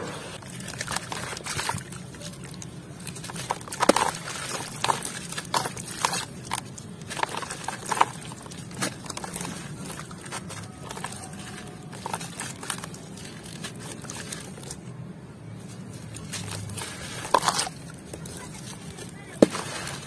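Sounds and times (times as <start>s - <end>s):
sand clay crumbled by hand: 15.8s - 20.0s.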